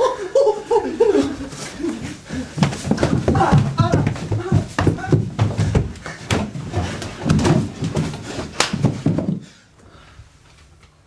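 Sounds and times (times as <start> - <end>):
footsteps on wooden stairs: 1.5 - 9.6.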